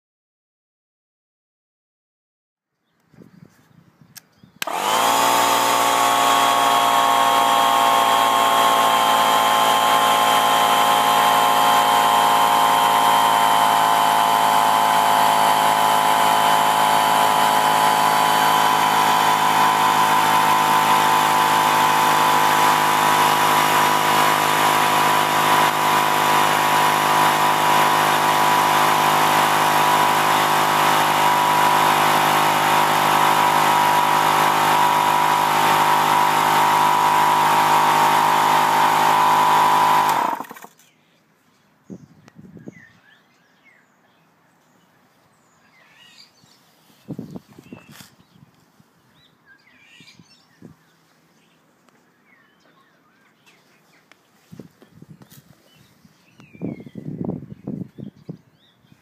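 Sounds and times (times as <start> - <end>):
air compressor running: 4.6 - 40.7.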